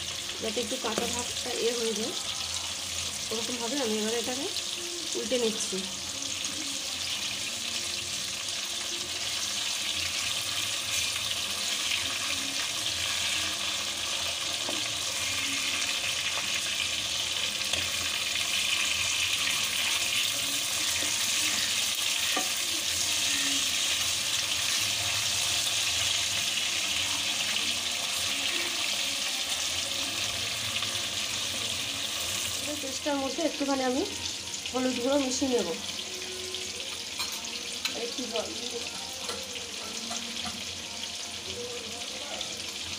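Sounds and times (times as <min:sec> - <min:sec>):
fish sizzling in hot oil: 0:00.0 - 0:42.9.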